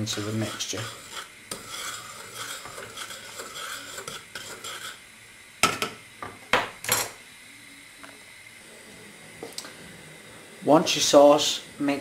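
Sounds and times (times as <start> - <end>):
spoon scraping a saucepan: 0.0 - 5.1.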